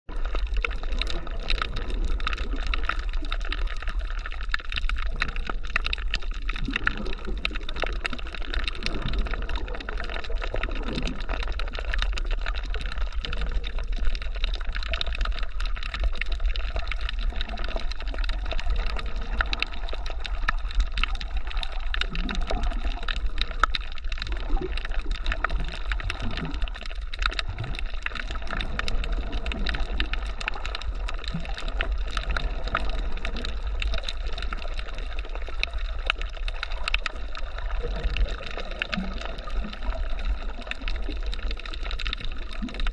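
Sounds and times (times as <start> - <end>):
underwater rumble of moving water: 0.0 - 42.9
fine crackling clicks: 0.1 - 42.9.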